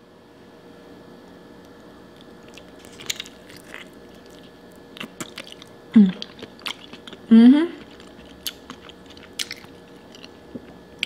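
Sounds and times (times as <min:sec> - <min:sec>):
wet chewing mouth sounds: 0:02.2 - 0:10.8
person humming: 0:06.0 - 0:06.3, 0:07.3 - 0:07.9.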